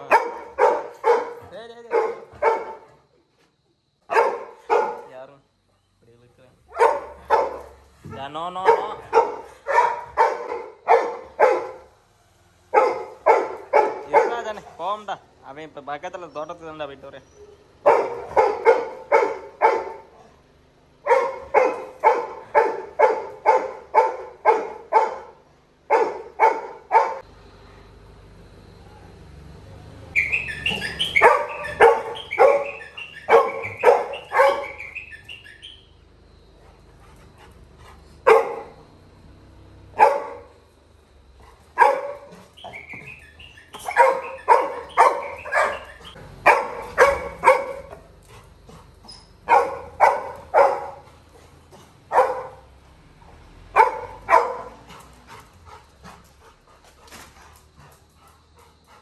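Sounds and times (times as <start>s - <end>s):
dog barking: 0.0s - 3.0s, 4.1s - 5.1s, 6.6s - 12.0s, 12.7s - 14.8s, 17.4s - 20.4s, 21.0s - 27.3s, 30.2s - 36.0s, 38.1s - 40.6s, 41.4s - 52.8s, 53.7s - 55.4s
dog whining: 30.2s - 35.8s, 42.0s - 47.4s.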